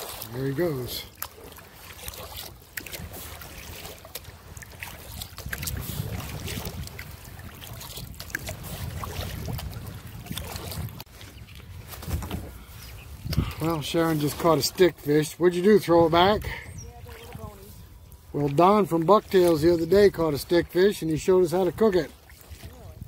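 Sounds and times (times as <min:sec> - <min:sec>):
paddle splashing water: 0:00.0 - 0:23.0
wind rumble on microphone: 0:02.8 - 0:14.7, 0:15.8 - 0:18.6, 0:22.3 - 0:23.0.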